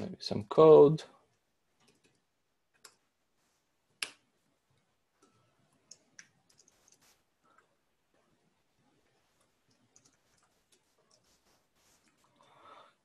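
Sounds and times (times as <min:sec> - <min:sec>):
computer keyboard keystrokes: 0:05.9 - 0:07.0, 0:09.7 - 0:10.4.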